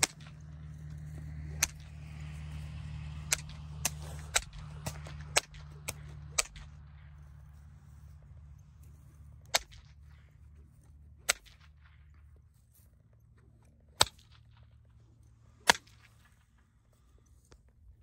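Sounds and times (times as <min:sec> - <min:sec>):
whip cracking: 0:00.0 - 0:07.0, 0:09.3 - 0:10.3, 0:11.2 - 0:12.0, 0:13.9 - 0:14.8, 0:15.6 - 0:16.4
low steady rumble: 0:00.0 - 0:18.0.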